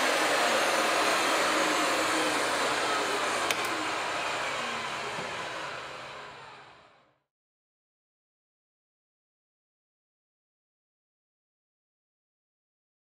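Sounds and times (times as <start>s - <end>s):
electric motor running: 0.0s - 7.1s.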